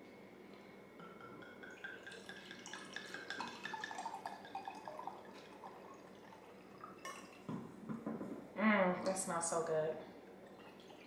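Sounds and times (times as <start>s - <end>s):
wine pouring into a glass: 1.0s - 7.5s.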